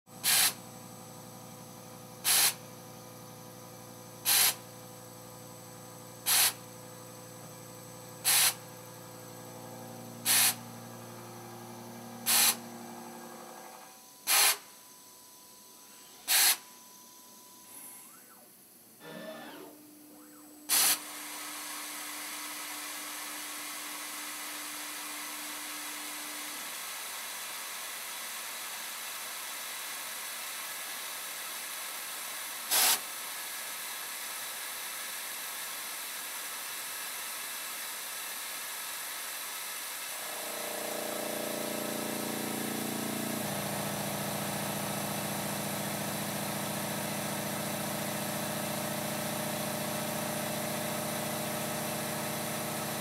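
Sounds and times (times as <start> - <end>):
milling machine cutting steel: 40.2 - 47.0.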